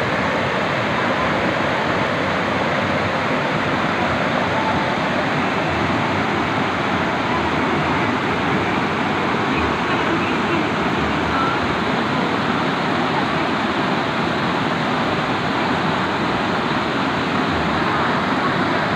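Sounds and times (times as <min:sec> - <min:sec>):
waterfall roaring: 0:00.0 - 0:18.9.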